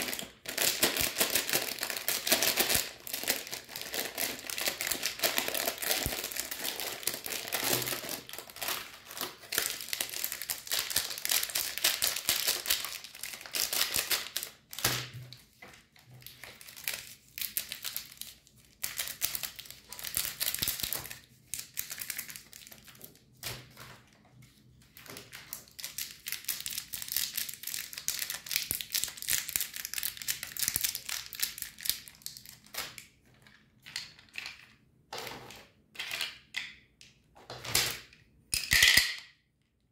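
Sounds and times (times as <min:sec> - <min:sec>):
foil candy wrappers rustling: 0:00.0 - 0:14.8, 0:25.0 - 0:33.4
plastic food wrapper crinkling: 0:00.0 - 0:23.8, 0:25.0 - 0:34.8.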